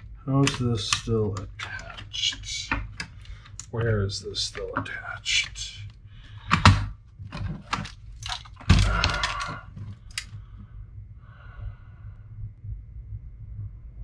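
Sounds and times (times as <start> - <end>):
plastic case clattering: 0.4 - 3.7, 6.4 - 10.3.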